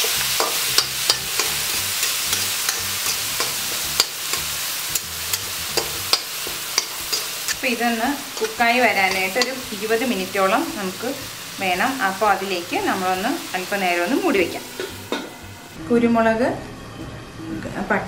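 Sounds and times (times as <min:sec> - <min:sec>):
metal spatula scraping wok: 0:00.0 - 0:11.8
clam meat frying and sizzling: 0:00.0 - 0:15.8.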